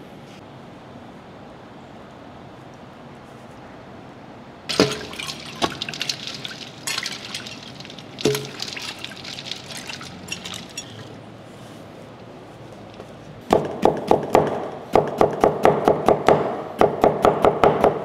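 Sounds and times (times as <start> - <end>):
metal spoon clinking in metal bowl: 4.7 - 11.1
liquid sloshing: 4.7 - 11.2.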